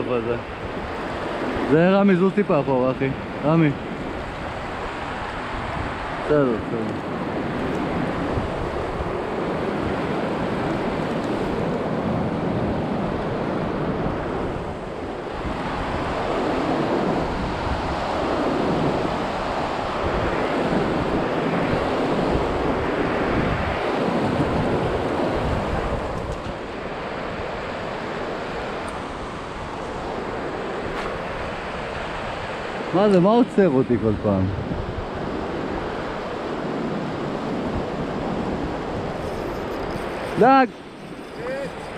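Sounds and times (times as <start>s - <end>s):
wind buffeting microphone: 0.0s - 41.9s.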